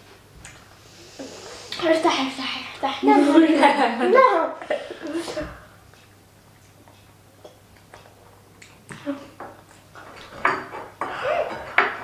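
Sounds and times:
plates clattering on a table: 9.3 - 12.0.

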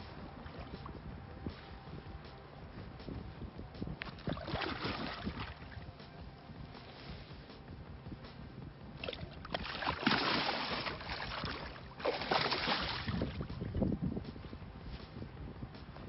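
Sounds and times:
water splashing: 4.0 - 6.0, 9.0 - 13.8.

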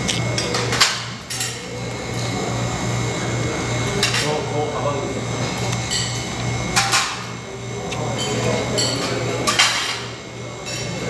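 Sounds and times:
steady low hum: 0.0 - 10.7
plates and cutlery clinking: 8.0 - 11.0.

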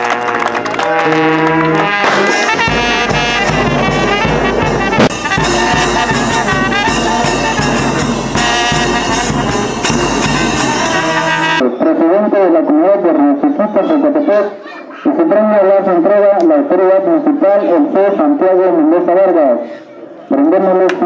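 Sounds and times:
brass band playing: 0.0 - 11.7
low bass line: 2.6 - 11.6.

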